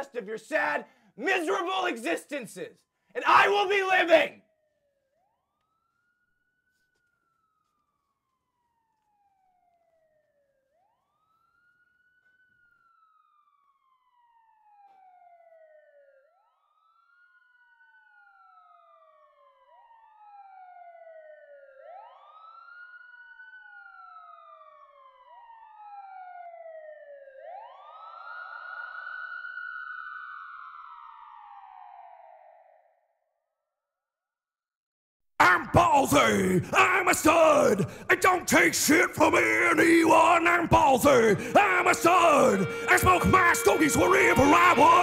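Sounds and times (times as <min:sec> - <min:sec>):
police sirens wailing: 0:03.2 - 0:04.4, 0:35.4 - 0:45.0.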